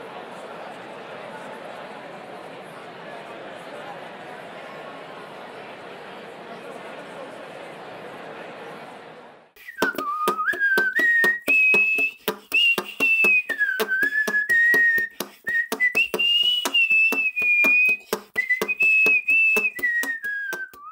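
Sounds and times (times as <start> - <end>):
person whistling a tune: 9.6 - 20.9
clicking beat: 9.8 - 20.9.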